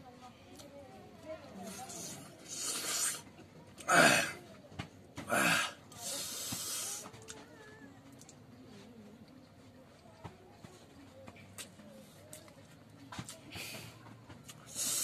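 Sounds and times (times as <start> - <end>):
man breathing with hiss: 1.8 - 3.2, 5.3 - 7.1, 14.7 - 15.0.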